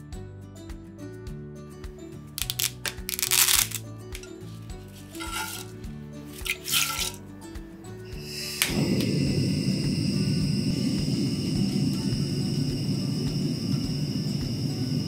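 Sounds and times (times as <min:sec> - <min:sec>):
background music: 0:00.0 - 0:15.0
dry spaghetti snapping: 0:02.4 - 0:05.7, 0:06.3 - 0:07.2.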